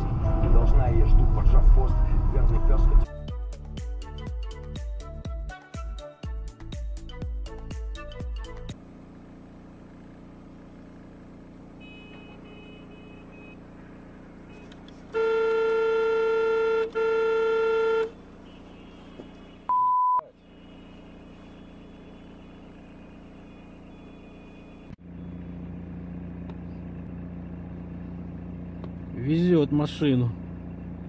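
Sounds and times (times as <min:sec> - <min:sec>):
engine and road noise inside car: 0:00.0 - 0:03.0, 0:08.7 - 0:31.0
street traffic noise: 0:00.0 - 0:03.1, 0:08.7 - 0:31.0
car horn blasts: 0:11.7 - 0:13.6, 0:15.1 - 0:25.0
short electronic beep: 0:19.7 - 0:20.4.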